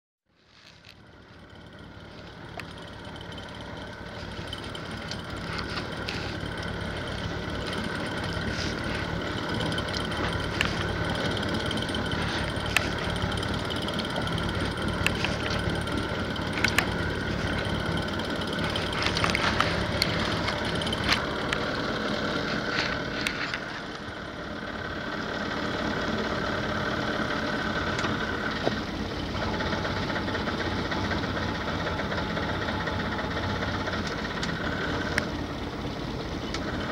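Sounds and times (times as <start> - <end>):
boat engine idling: 0.3 - 36.9
wind: 0.3 - 36.9
water noise: 2.2 - 24.1
sharp clicks and knocks: 2.5 - 21.7.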